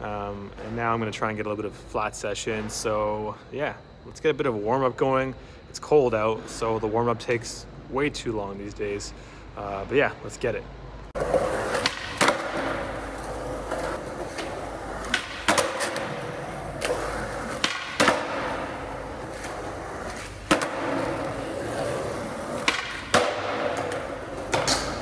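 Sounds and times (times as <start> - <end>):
skateboard rolling on concrete: 11.2 - 25.0
skateboard tail clacking: 11.2 - 25.0.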